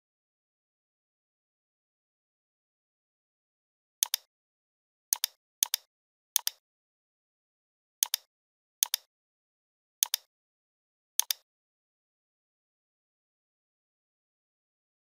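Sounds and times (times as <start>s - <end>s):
computer mouse button clicks: 5.2s - 6.6s, 8.0s - 9.1s, 10.0s - 10.3s, 11.2s - 11.4s.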